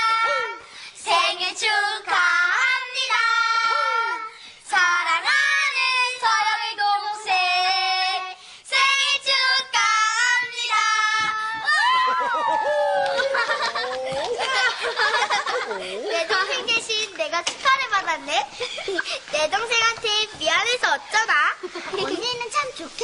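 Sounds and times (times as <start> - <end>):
child singing: 0.0 - 11.7.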